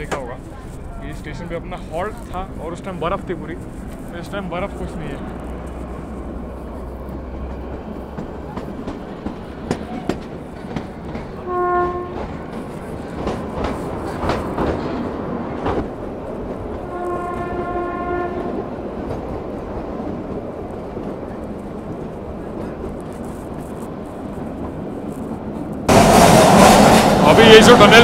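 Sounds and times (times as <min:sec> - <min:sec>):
wheels clicking over rail joints: 0:00.0 - 0:17.8
train rumbling: 0:00.0 - 0:28.0
train horn: 0:11.4 - 0:12.4, 0:16.8 - 0:18.8.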